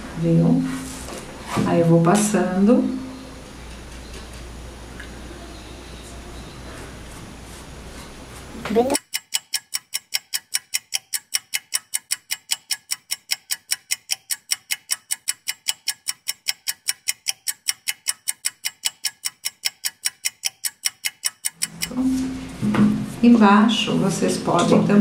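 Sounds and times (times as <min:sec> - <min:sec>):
clock ticking: 0:08.8 - 0:22.2.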